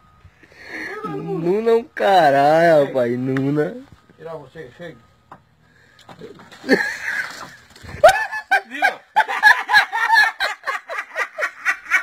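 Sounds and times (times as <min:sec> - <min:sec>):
people laughing hard: 0:06.6 - 0:12.0.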